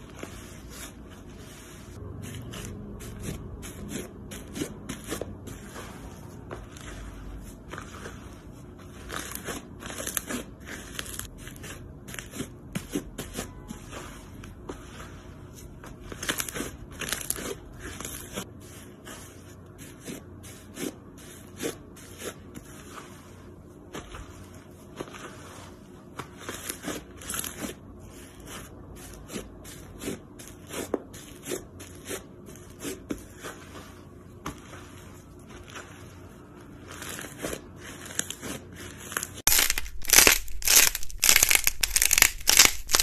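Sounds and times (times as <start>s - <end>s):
slime crackling as stretched: 38.2s - 43.0s.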